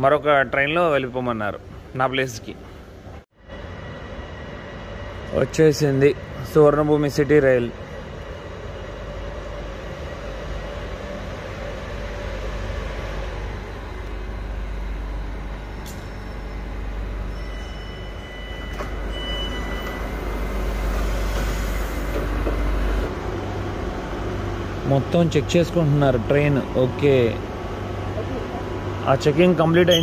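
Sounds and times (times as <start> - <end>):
train rumbling: 0.0 - 30.0
thin high tone: 15.8 - 20.6, 29.7 - 30.0.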